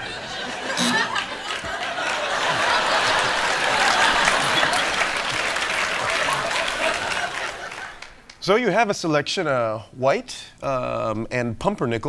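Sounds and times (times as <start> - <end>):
audience laughing: 0.0 - 8.2
audience applauding: 0.6 - 8.4.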